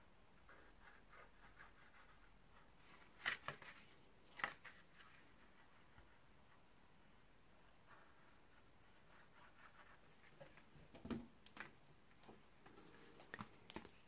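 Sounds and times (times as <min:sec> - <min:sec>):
card stock tapping and rustling: 0:10.4 - 0:14.0.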